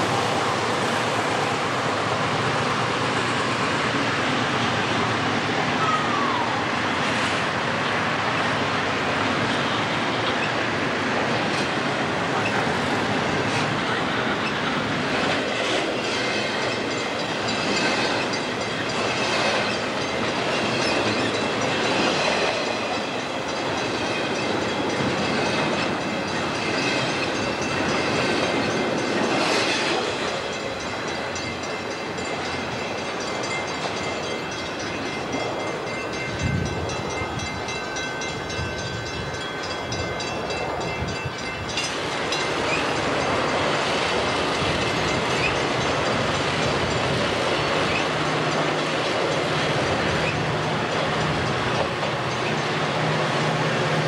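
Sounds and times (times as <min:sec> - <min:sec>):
commuter train rolling past: 0:00.0 - 0:54.0
freight train rumbling past: 0:00.0 - 0:54.0
wheels clicking over rail joints: 0:10.3 - 0:54.0
high ringing wheel tones: 0:16.4 - 0:53.0.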